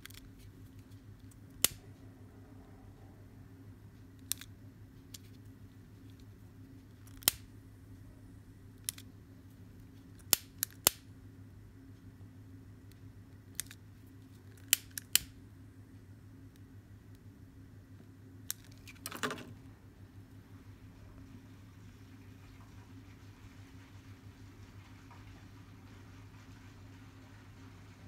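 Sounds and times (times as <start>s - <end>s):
scissors snipping cord: 7.0s - 7.5s, 10.2s - 11.0s, 14.5s - 15.3s.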